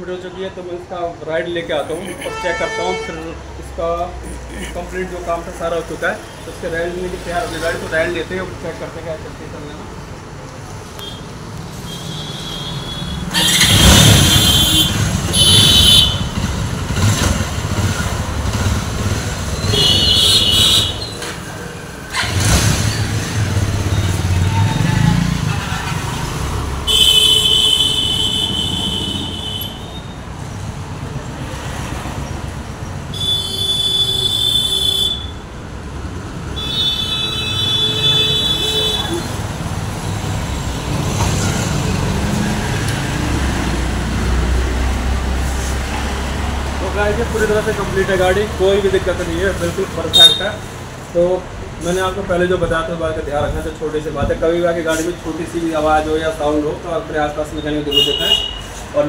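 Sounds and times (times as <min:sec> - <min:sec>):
street traffic: 0:00.0 - 0:59.0
horn honks: 0:02.2 - 0:03.4, 0:11.8 - 0:16.4, 0:19.6 - 0:21.1, 0:26.8 - 0:30.2, 0:33.1 - 0:35.4, 0:36.6 - 0:39.4, 0:50.1 - 0:50.5, 0:57.9 - 0:58.7
motorcycle engine revving: 0:13.2 - 0:29.4.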